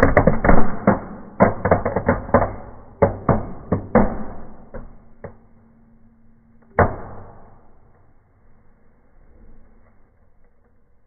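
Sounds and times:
fire crackling and popping: 0.0 - 5.4.

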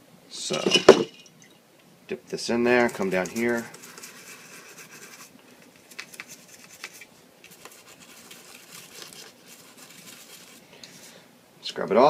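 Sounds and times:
toothbrush scrubbing: 2.7 - 10.6.

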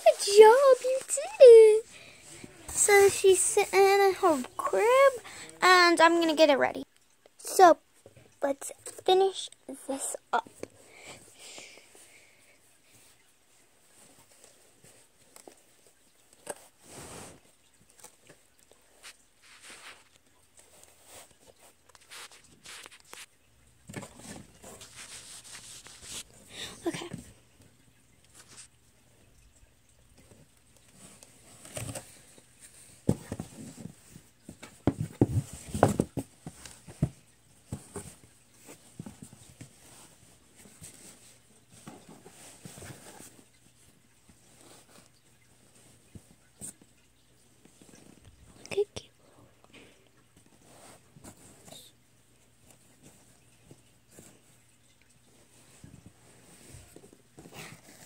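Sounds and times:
bedding rustling: 0.0 - 6.0, 18.8 - 27.4, 55.2 - 58.0
knocks and rustling in cardboard box: 31.6 - 39.9.

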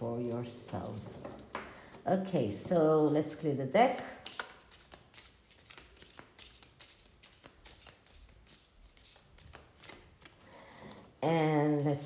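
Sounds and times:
cards being shuffled: 4.2 - 10.4.

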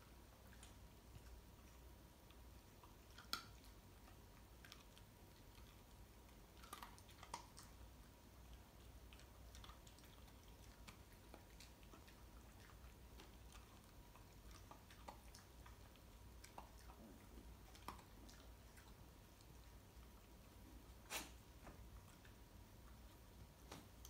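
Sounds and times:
dog chewing dry kibble: 2.8 - 20.3.

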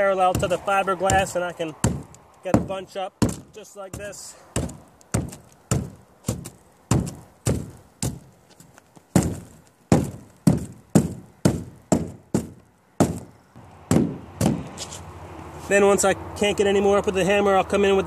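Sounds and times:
hammer knocking on deck: 0.3 - 8.2, 9.2 - 13.3, 13.9 - 14.7.

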